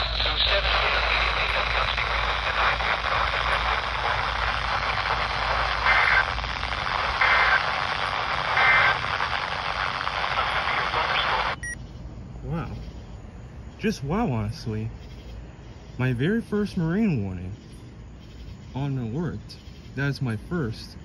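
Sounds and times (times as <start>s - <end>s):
radio static hiss: 0.0s - 11.8s, 12.4s - 13.1s, 13.8s - 21.0s
two-tone data bursts: 0.0s - 11.8s.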